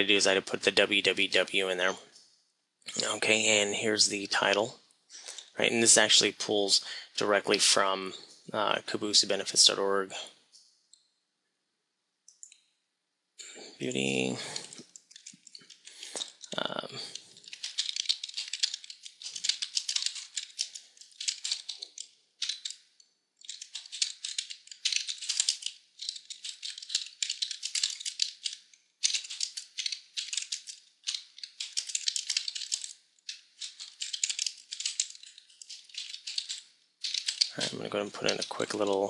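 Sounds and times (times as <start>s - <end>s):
computer keyboard typing: 14.5s - 22.8s, 23.4s - 39.0s.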